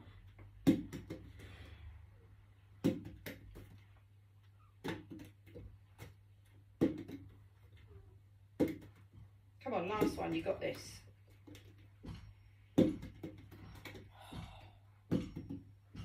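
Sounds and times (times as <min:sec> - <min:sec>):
bottle bouncing: 0:15.1 - 0:16.0.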